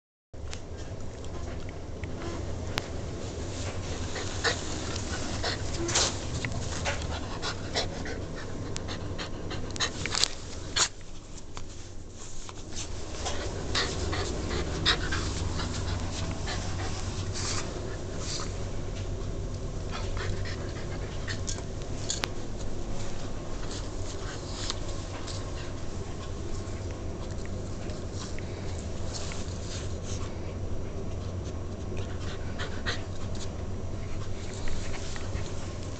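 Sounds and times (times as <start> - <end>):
rustling of papers and bedding: 2.2 - 7.5, 9.8 - 19.4, 21.8 - 30.5, 33.3 - 35.9
dog panting: 3.6 - 11.0, 13.1 - 18.4, 19.9 - 21.7, 31.8 - 35.9.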